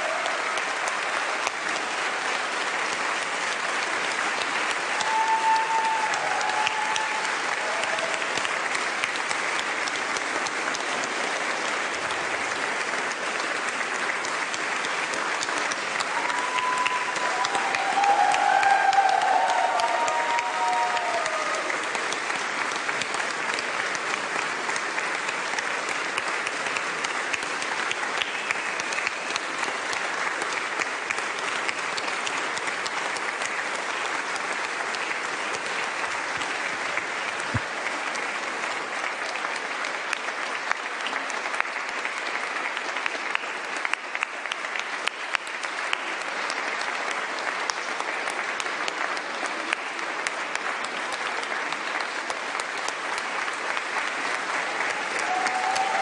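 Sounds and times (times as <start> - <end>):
large crowd applauding: 0.0 - 56.0.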